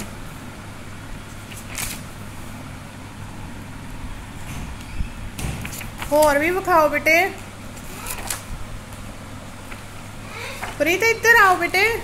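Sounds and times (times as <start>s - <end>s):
steady low hum: 0.0s - 12.0s
paper pages turning: 1.3s - 2.1s, 5.6s - 6.3s, 7.8s - 8.5s, 10.5s - 10.9s
paper rustling: 1.3s - 2.1s, 5.6s - 6.4s, 10.5s - 10.9s.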